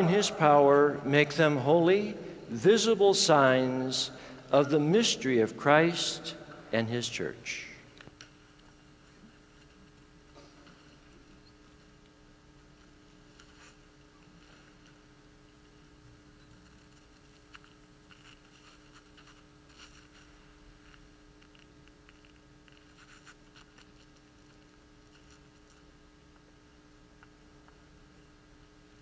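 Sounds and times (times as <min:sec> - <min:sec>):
steady low hum: 0:00.0 - 0:29.0
faint clicks and rustles: 0:08.0 - 0:26.5.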